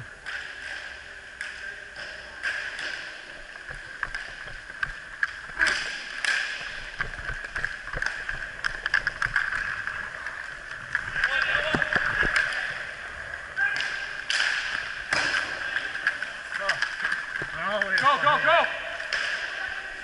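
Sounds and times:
hockey sticks clacking: 0:00.1 - 0:20.0
inline skate wheels whirring: 0:03.0 - 0:17.5.

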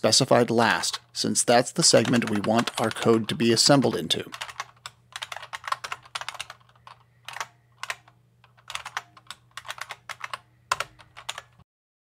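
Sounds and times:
faint low hum: 0:00.0 - 0:11.6
keyboard typing clicks: 0:02.0 - 0:03.4, 0:04.3 - 0:11.6.

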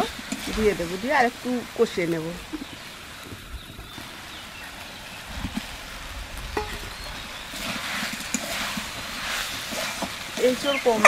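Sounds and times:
curry sizzling in oil: 0:00.0 - 0:11.0
steel spatula scraping pan: 0:06.6 - 0:11.0.

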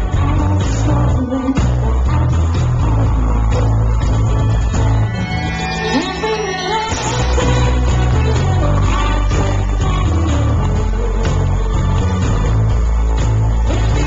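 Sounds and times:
woman singing: 0:00.0 - 0:04.2, 0:05.8 - 0:12.0
electropop song over loudspeakers: 0:00.0 - 0:14.0.

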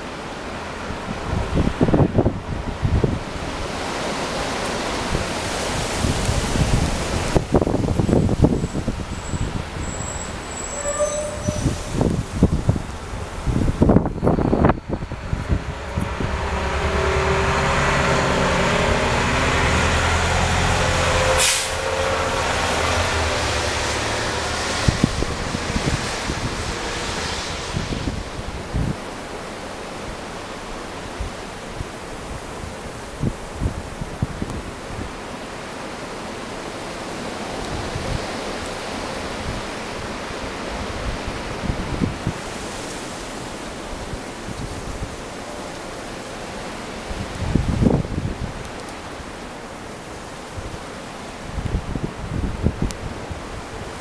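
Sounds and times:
wind gusting through trees: 0:00.0 - 0:54.0
wind buffeting microphone: 0:00.8 - 0:35.3, 0:37.3 - 0:45.8, 0:46.8 - 0:49.4, 0:50.2 - 0:54.0
truck engine passing: 0:13.8 - 0:28.4
short hiss: 0:21.4 - 0:21.8.

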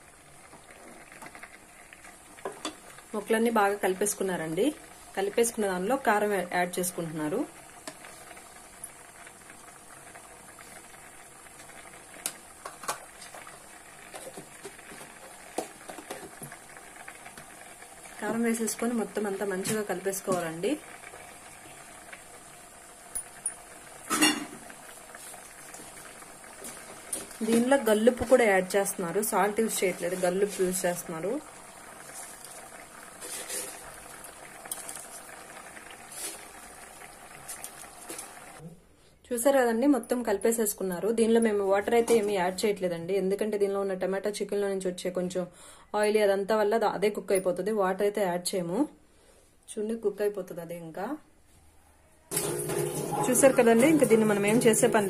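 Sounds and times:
curry sizzling in a pot: 0:00.0 - 0:38.7, 0:52.3 - 0:55.0.

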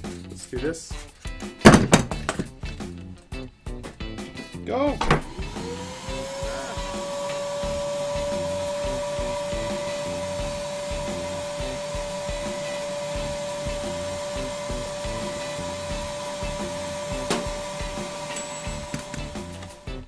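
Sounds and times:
vacuum motor whining: 0:05.1 - 0:20.0.

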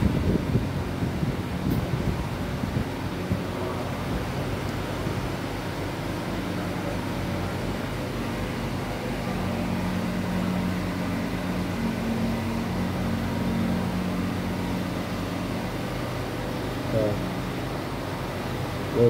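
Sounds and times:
machine hum with low throbbing: 0:00.0 - 0:19.0
droning tone: 0:06.1 - 0:17.3.

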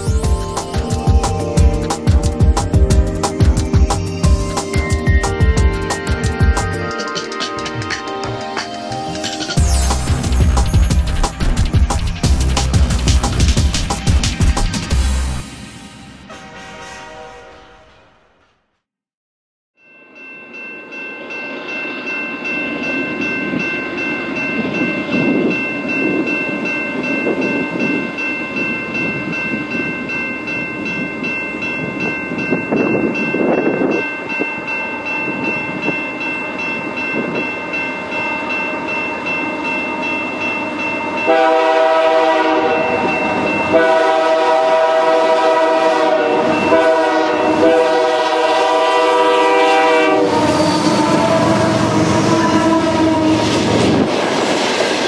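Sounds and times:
locomotive bell ringing: 0:00.0 - 0:13.0, 0:19.8 - 0:54.2
diesel engines and wheels rumbling: 0:09.6 - 0:15.4
train air horn blasts: 0:16.2 - 0:18.6, 0:41.3 - 0:43.0, 0:43.6 - 0:53.7.

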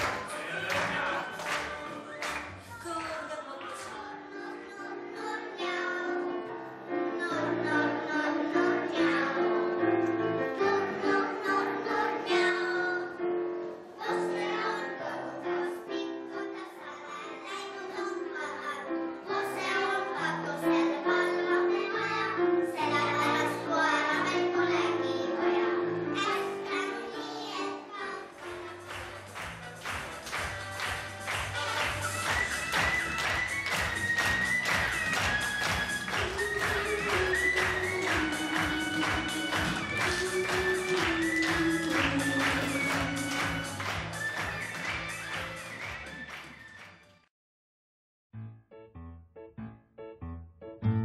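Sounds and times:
children singing: 0:00.0 - 0:02.9, 0:03.7 - 0:31.0, 0:36.0 - 0:44.7
instrumental accompaniment: 0:20.7 - 0:47.2, 0:48.4 - 0:51.0.

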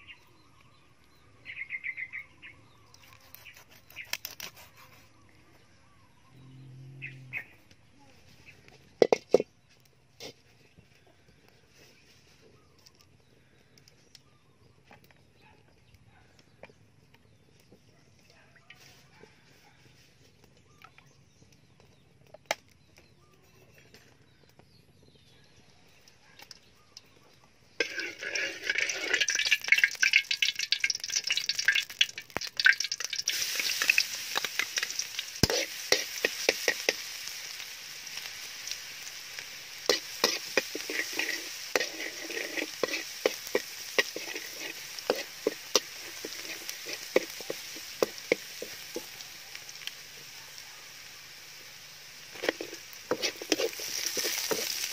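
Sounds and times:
spatula scraping a wok: 0:03.0 - 0:05.2, 0:08.2 - 0:09.6, 0:10.2 - 0:10.8, 0:27.8 - 0:38.3, 0:38.9 - 0:50.0, 0:52.0 - 0:54.9
garlic sizzling in hot oil: 0:08.2 - 0:11.0, 0:27.7 - 0:54.9.

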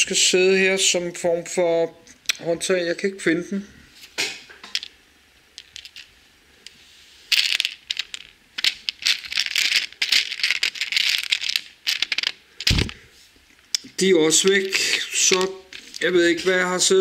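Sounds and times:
plastic bricks clicking and rattling: 0:05.6 - 0:06.1, 0:07.3 - 0:13.0, 0:14.4 - 0:16.2.

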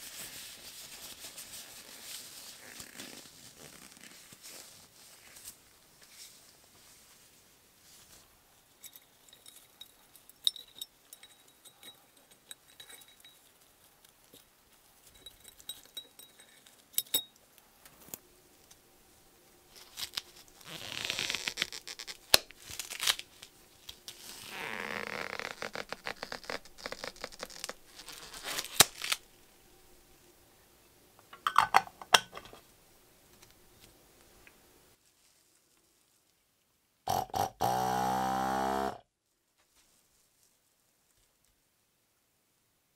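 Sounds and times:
rubber gloves rustling: 0:00.0 - 0:18.8, 0:19.7 - 0:29.5, 0:35.0 - 0:36.6.

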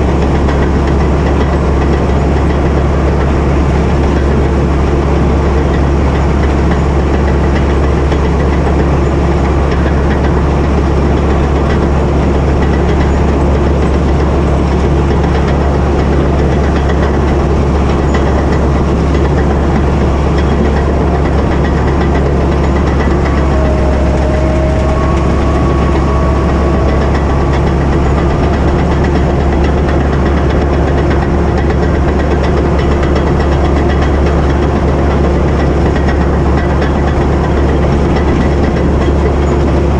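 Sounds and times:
diesel engine droning: 0:00.0 - 0:39.9
faint wavering whine: 0:23.2 - 0:30.0.

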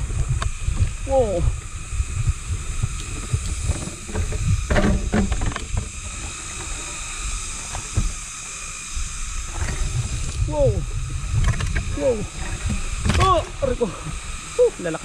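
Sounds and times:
wind rumble on microphone: 0:00.0 - 0:08.2, 0:08.8 - 0:14.8
faint steady hiss: 0:00.0 - 0:15.0.

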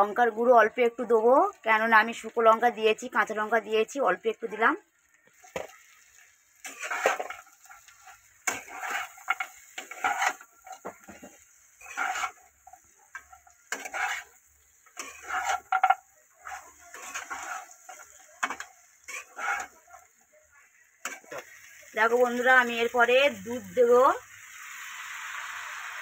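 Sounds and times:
metal spatula scraping a wok: 0:05.4 - 0:20.3, 0:21.0 - 0:22.5.

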